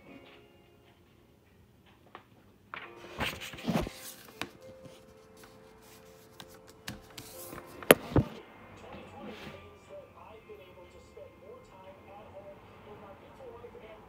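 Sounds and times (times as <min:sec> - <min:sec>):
phone handling rustles and knocks: 0:06.3 - 0:08.4.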